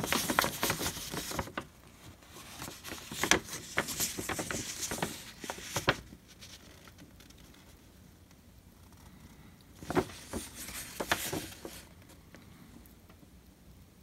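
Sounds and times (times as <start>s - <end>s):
paper rustling and crinkling: 0.0s - 7.9s, 9.8s - 12.2s.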